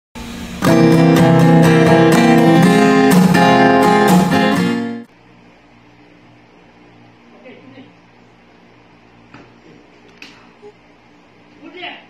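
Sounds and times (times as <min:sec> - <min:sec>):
strummed acoustic guitar: 0:00.2 - 0:05.1.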